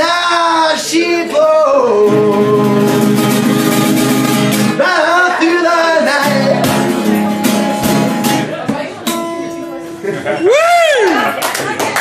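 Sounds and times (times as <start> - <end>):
man singing: 0.0 - 7.4
strummed acoustic guitar: 0.0 - 10.4.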